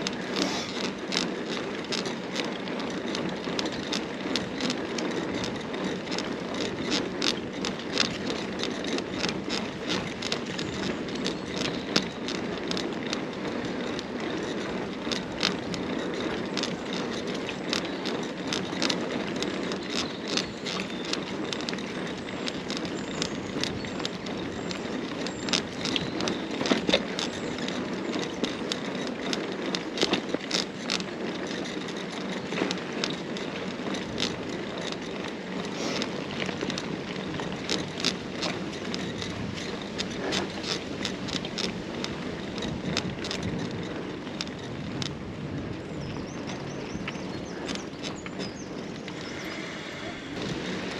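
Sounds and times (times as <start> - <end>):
bike chain and frame rattling: 0.0 - 50.9
bike tyres on rough trail: 0.0 - 50.9.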